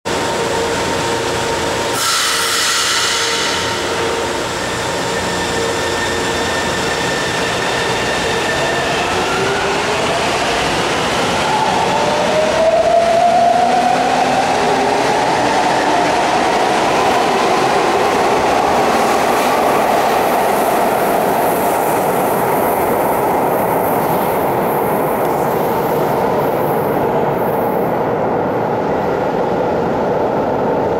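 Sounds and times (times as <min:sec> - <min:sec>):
subway train motor whine: 0:00.1 - 0:30.9
train cars running on rails: 0:00.1 - 0:30.9.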